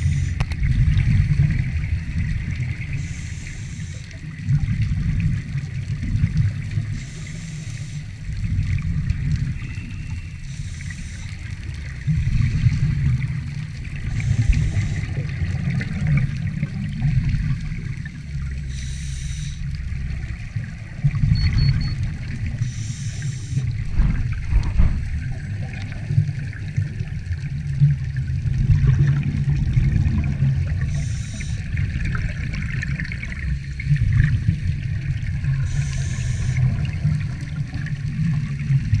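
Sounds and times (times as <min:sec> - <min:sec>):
regulator bubbles gurgling underwater: 0:00.0 - 0:39.0
low rumble: 0:08.3 - 0:26.6.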